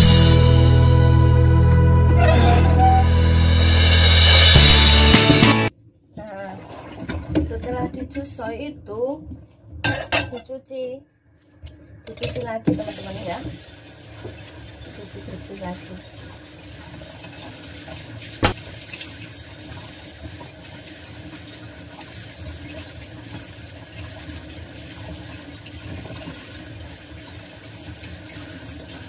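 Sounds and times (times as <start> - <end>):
water splashing: 6.4 - 7.7, 12.8 - 29.0
tap water running into sink: 12.7 - 29.0.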